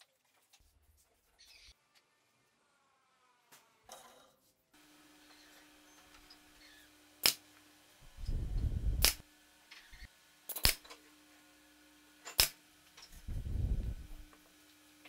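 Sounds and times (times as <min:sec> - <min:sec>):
short low rumbles: 0:08.2 - 0:09.1, 0:13.3 - 0:14.2
nail gun shots: 0:10.5 - 0:10.9.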